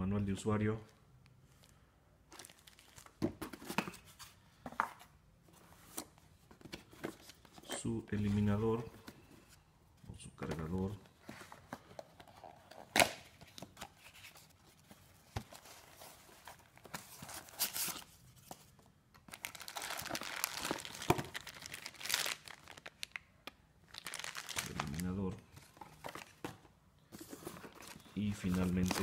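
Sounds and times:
plastic crinkling: 2.3s - 3.2s, 19.3s - 26.4s
packaging clicks and rustles: 2.3s - 3.9s, 19.2s - 23.2s, 23.9s - 29.0s.

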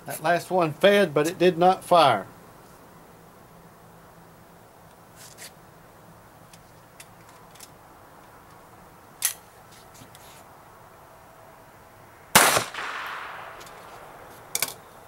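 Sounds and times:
pistol shot with echo: 12.3s - 13.7s.

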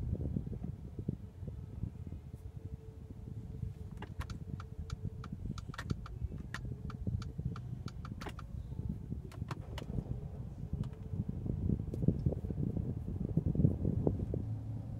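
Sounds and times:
car engine idling: 3.4s - 14.9s
turn signal ticking: 3.9s - 10.1s.

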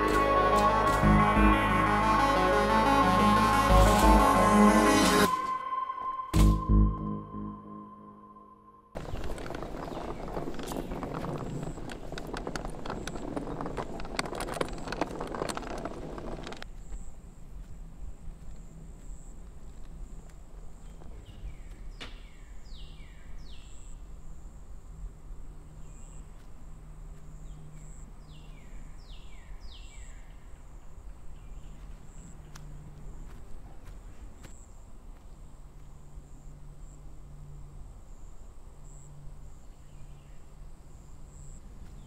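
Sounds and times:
rustling noise: 9.0s - 21.3s.

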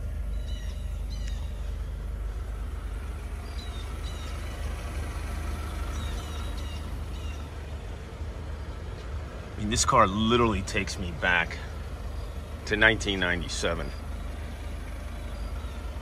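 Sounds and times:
low outdoor rumble: 0.0s - 16.0s
high bird chirps: 0.2s - 2.0s, 3.4s - 4.8s, 5.6s - 8.0s.

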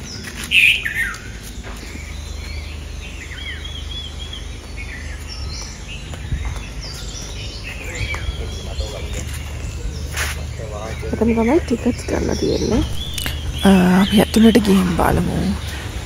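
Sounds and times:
low steady rumble: 0.0s - 16.0s
wild birds chirping: 0.0s - 16.0s.

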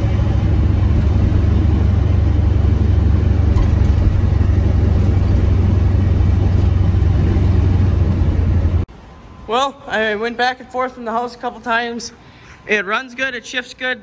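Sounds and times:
pickup truck engine rumble: 0.0s - 8.9s.

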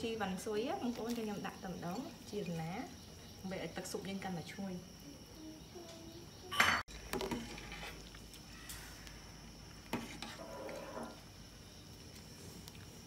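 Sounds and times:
ladle scraping a metal pot: 7.1s - 8.2s, 9.9s - 11.2s.

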